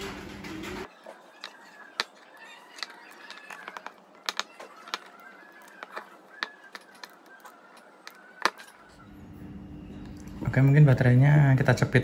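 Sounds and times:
batteries knocking together: 1.4 - 8.7.

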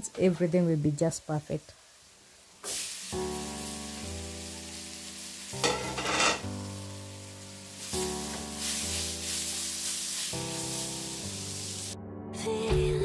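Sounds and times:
vegetables sizzling in hot oil: 0.0 - 12.0
background music with slow chords: 3.1 - 13.0.

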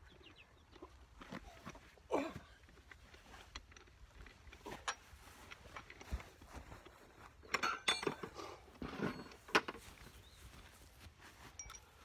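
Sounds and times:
lug nuts clinking on wheel hub: 7.4 - 9.9.

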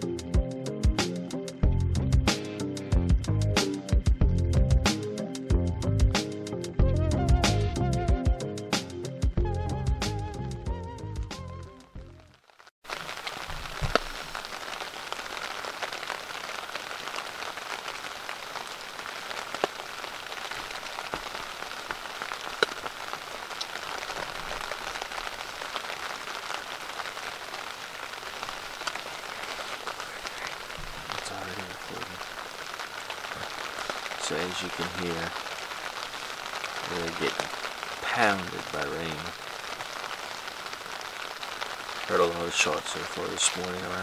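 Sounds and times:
heavy rain on fabric roof: 12.2 - 44.0.

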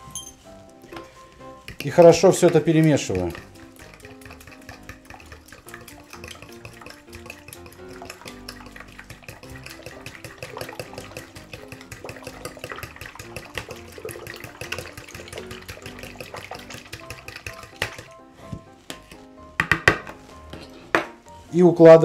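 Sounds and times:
quiet background music: 0.0 - 22.0
liquid sloshing in a bowl: 0.9 - 18.2.

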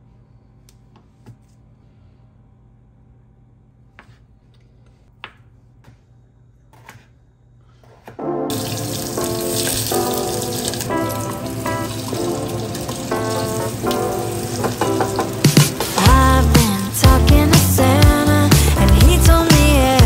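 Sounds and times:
food hissing in saucepan: 8.5 - 16.0.

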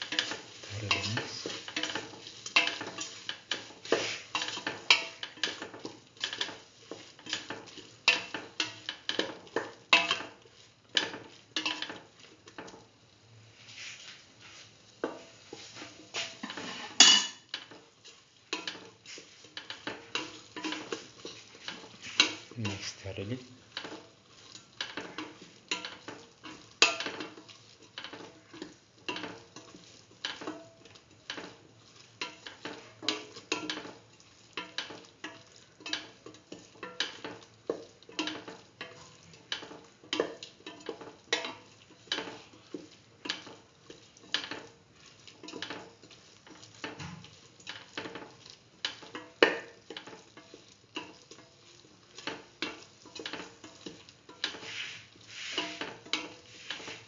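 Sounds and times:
spoon scraping metal pot: 52.7 - 57.0.

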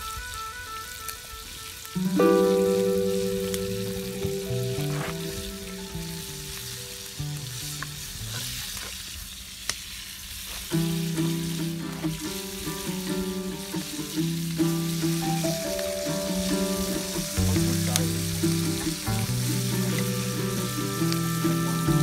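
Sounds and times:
background music with low notes: 0.0 - 8.3, 10.8 - 22.0
meat sizzling in a pan: 4.2 - 22.0.

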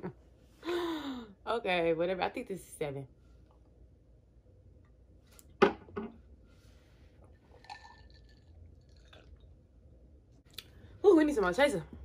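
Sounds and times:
sipping and swallowing: 7.3 - 9.6.

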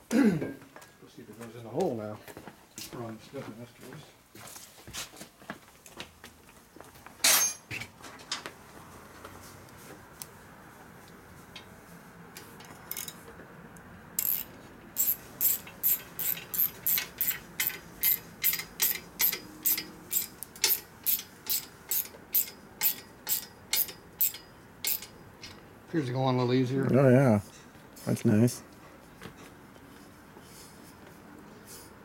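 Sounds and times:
ratchet wrench clicking: 12.9 - 13.2, 14.2 - 25.6.

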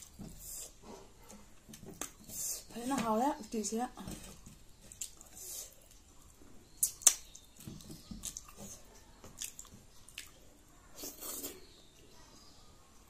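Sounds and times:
fingers squishing wet food: 4.8 - 11.8
chewing and lip smacking: 8.2 - 10.4.

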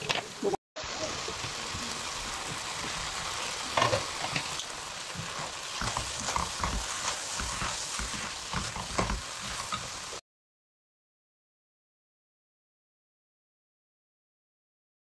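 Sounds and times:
noodles sizzling in a pan: 0.1 - 10.2
chopsticks knocking a pan: 5.2 - 9.9.

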